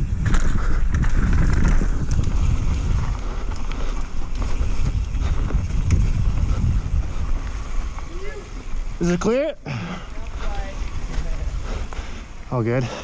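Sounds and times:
bike clicks and rattles: 0.0s - 9.2s
tyres rolling over loose dirt: 0.0s - 13.0s
wind buffeting microphone: 0.0s - 13.0s.

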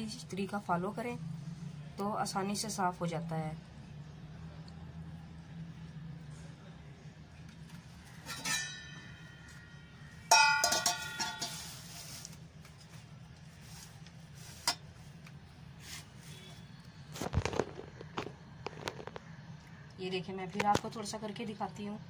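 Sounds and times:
glass bowl clinking: 8.3s - 11.7s.

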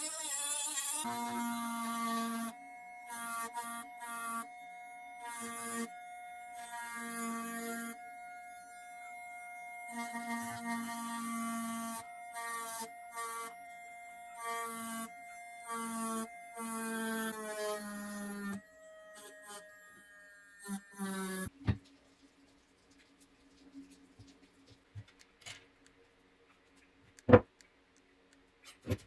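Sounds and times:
rotary tool motor whine: 0.0s - 21.5s.

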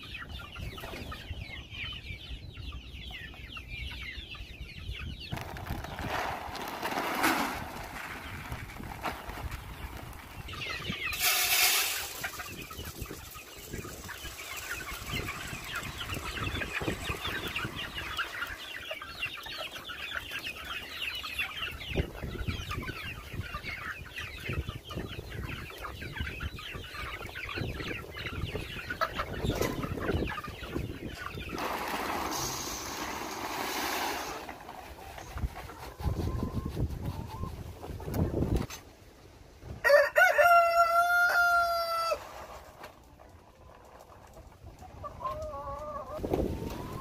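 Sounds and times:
chickens clucking: 0.0s - 47.0s
feed pellets poured into metal feeder: 11.1s - 12.4s, 31.7s - 34.4s.

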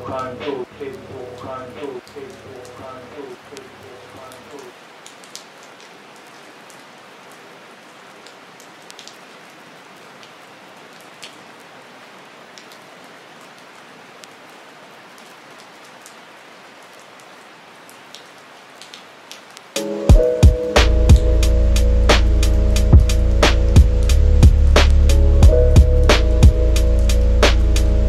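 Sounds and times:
steady rain hiss: 0.0s - 28.0s
sharp raindrop clicks: 3.5s - 6.8s, 8.2s - 9.2s, 11.0s - 11.4s, 17.9s - 19.8s.

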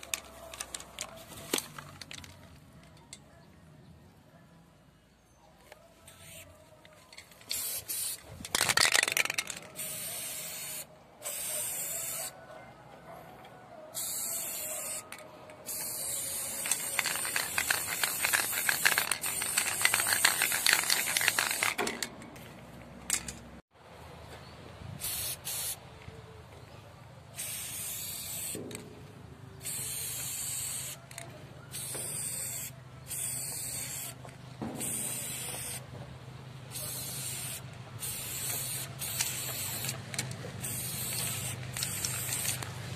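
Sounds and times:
spray paint can hissing: 6.1s - 6.6s, 7.4s - 12.4s, 14.0s - 22.0s, 25.0s - 25.8s, 27.4s - 28.8s, 29.6s - 35.9s, 36.7s - 42.7s.

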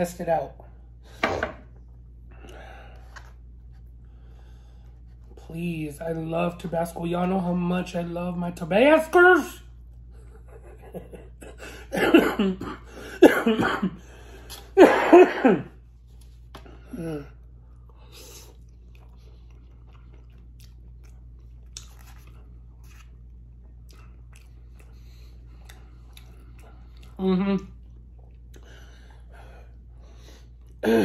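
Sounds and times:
man coughing and clearing throat: 11.4s - 14.0s, 14.8s - 15.7s.

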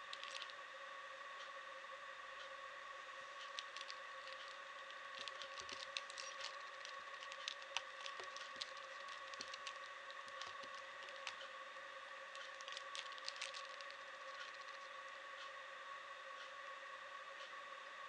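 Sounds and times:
steady background hum: 0.0s - 18.0s
puzzle cube clicking: 3.5s - 4.6s, 5.2s - 11.4s.

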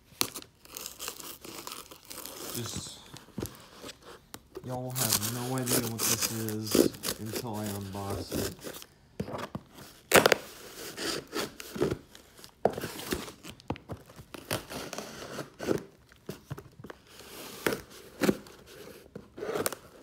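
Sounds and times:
package rustling and crinkling: 0.0s - 10.5s.

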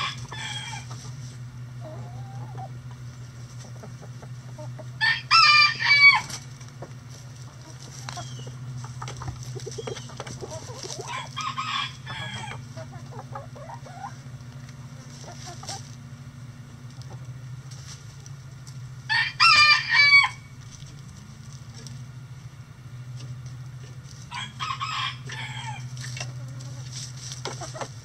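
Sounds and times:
rooster crowing: 0.0s - 0.9s, 5.0s - 6.4s, 11.0s - 12.6s, 19.1s - 20.5s, 24.3s - 26.0s
chickens clucking: 0.0s - 22.3s, 23.1s - 28.0s
low steady hum: 0.0s - 28.0s.

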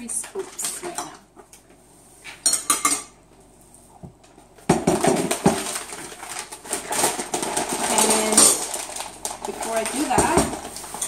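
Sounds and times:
paper bag crinkling: 5.0s - 11.0s.

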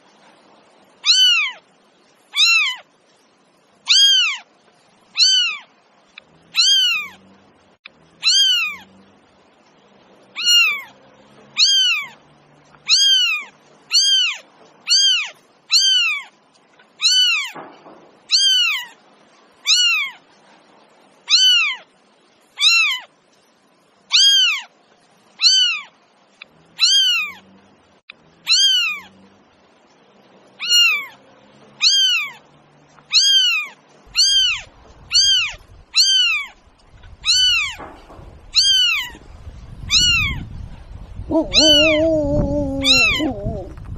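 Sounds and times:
cat meowing: 1.0s - 1.6s, 2.3s - 2.8s, 3.9s - 4.4s, 5.2s - 5.7s, 6.6s - 7.2s, 8.2s - 8.9s, 10.4s - 10.9s, 11.6s - 12.2s, 12.8s - 16.3s, 17.0s - 17.6s, 18.3s - 19.0s, 19.6s - 20.2s, 21.3s - 21.8s, 22.6s - 23.1s, 24.1s - 24.7s, 25.4s - 25.9s, 26.8s - 27.4s, 28.5s - 29.1s, 30.6s - 31.2s, 31.8s - 32.4s, 33.1s - 36.6s, 37.2s - 37.8s, 38.5s - 39.2s, 39.9s - 40.4s, 41.3s - 43.9s.

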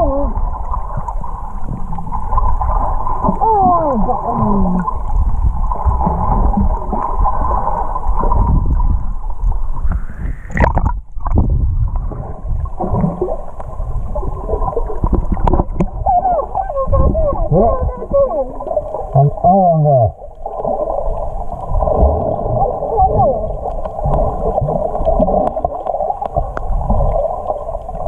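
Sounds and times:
muffled underwater rumble: 0.0s - 28.0s
muffled voice-like tones: 16.0s - 20.2s.

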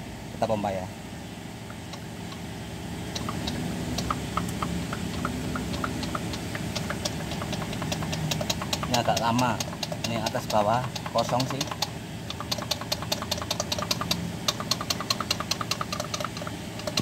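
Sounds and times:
low engine hum: 0.0s - 17.0s
hand pump clicking: 3.1s - 17.0s.

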